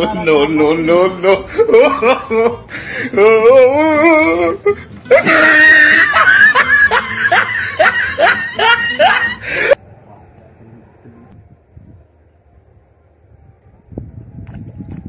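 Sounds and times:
rising yelps or cackles: 0:01.5 - 0:09.8
music: 0:02.8 - 0:09.4.

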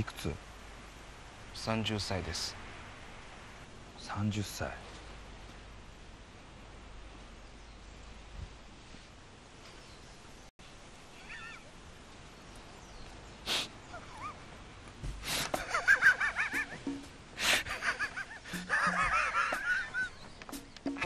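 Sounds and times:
sharp sniffs: 0:13.4 - 0:13.8, 0:15.2 - 0:15.6, 0:17.4 - 0:17.7.

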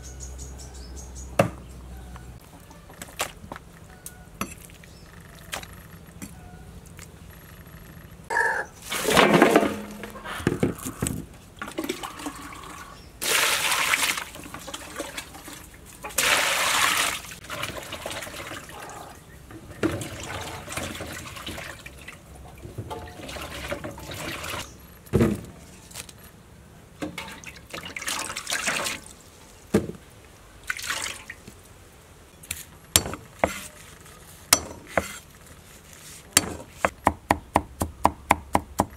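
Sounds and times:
water sloshing in metal basin: 0:08.8 - 0:10.4, 0:11.5 - 0:24.8, 0:27.0 - 0:29.3, 0:30.6 - 0:31.5.

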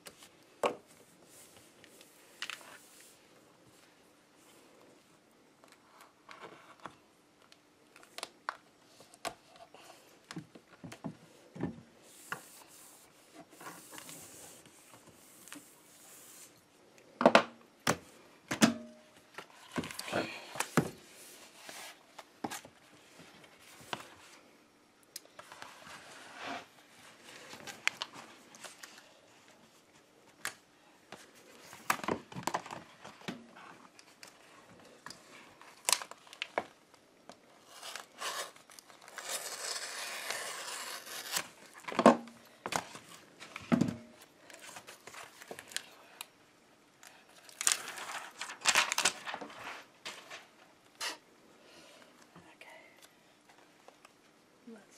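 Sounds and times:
paper backing crinkling and tearing: 0:37.6 - 0:41.9, 0:47.1 - 0:50.5.

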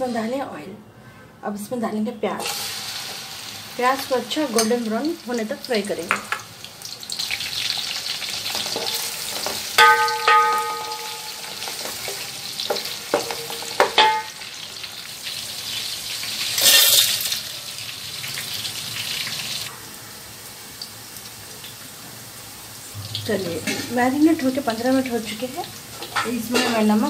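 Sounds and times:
onions sizzling in oil: 0:02.4 - 0:27.0
spatula clanking on metal pan: 0:08.5 - 0:14.4, 0:23.2 - 0:24.1, 0:26.0 - 0:27.0.

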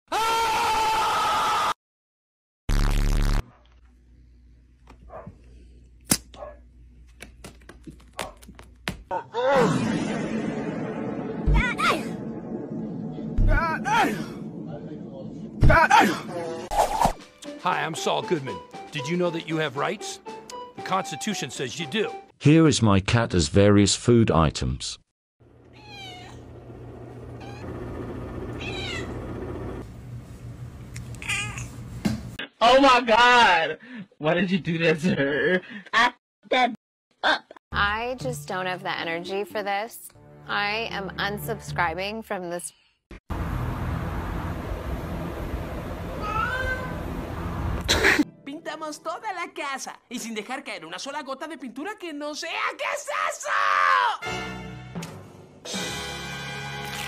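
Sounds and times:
loud harsh burst: 0:09.7 - 0:15.6
steady low hum: 0:10.5 - 0:15.9
kitten meowing: 0:25.7 - 0:26.4, 0:27.4 - 0:27.6, 0:28.6 - 0:29.2, 0:31.2 - 0:31.7, 0:46.2 - 0:47.0.

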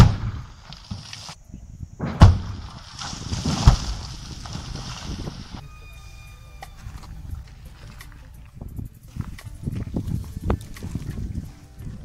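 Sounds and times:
explosive blasts: 0:00.0 - 0:01.2, 0:02.0 - 0:05.6
falling rock and debris: 0:00.0 - 0:01.4, 0:02.0 - 0:05.6.

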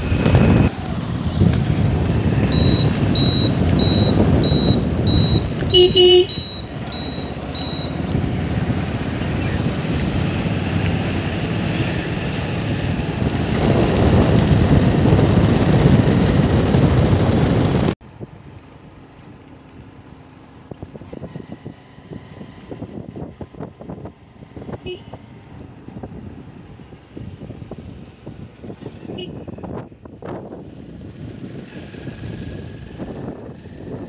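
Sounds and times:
wind buffeting microphone: 0:00.0 - 0:18.3, 0:20.6 - 0:34.0
motorbike road noise: 0:00.0 - 0:34.0
turn-indicator buzzer beeps: 0:02.5 - 0:08.0
horn honk: 0:02.6 - 0:08.0, 0:24.8 - 0:25.2, 0:29.1 - 0:29.4.

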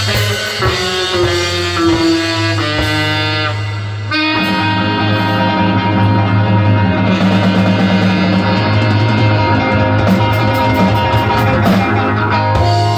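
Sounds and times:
live band holding a loud chord: 0:00.0 - 0:12.9.

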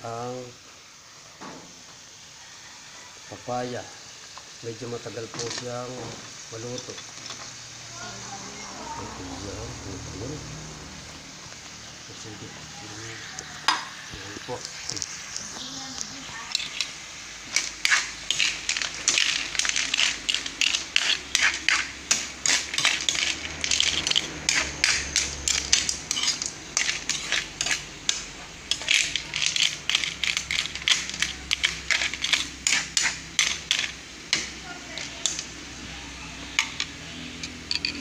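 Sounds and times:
metal spatula scraping a wok: 0:16.3 - 0:35.8.

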